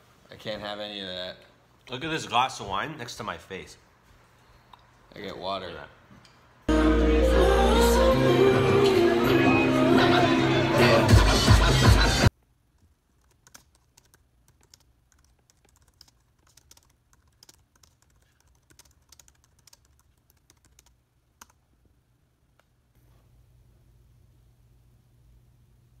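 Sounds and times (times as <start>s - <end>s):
laptop keyboard typing: 12.8s - 21.6s.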